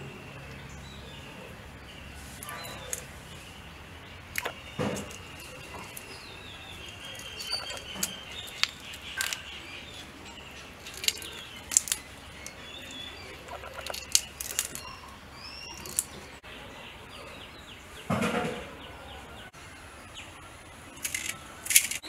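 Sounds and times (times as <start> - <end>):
birds chirping: 0.0 - 22.0
prawn shells clicking and crackling: 4.3 - 16.3, 21.0 - 22.0.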